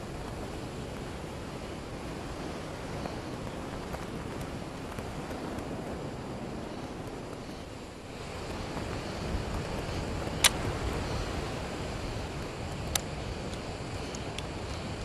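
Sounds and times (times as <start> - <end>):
wind rumble on microphone: 0.0 - 15.0
sharp clicks: 10.4 - 10.7.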